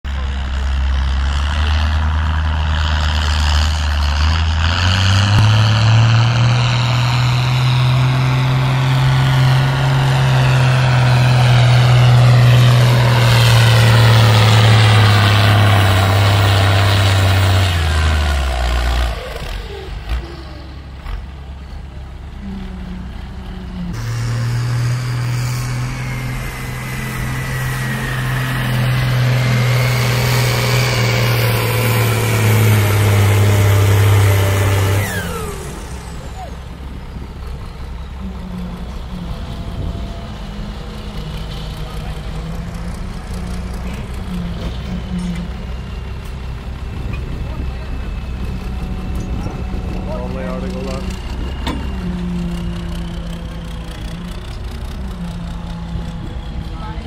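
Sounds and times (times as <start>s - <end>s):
second tractor diesel running: 0.0s - 57.0s
tractor diesel under load: 0.0s - 57.0s
turbo whine: 22.5s - 41.2s, 43.9s - 57.0s.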